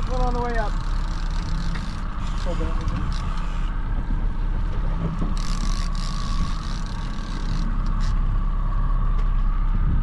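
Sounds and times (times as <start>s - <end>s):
boat engine humming and whining: 0.0s - 10.0s.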